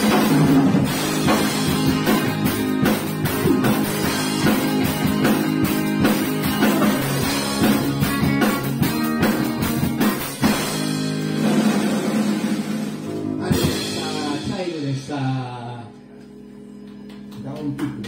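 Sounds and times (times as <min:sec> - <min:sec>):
rock band playing live: 0:00.0 - 0:17.3.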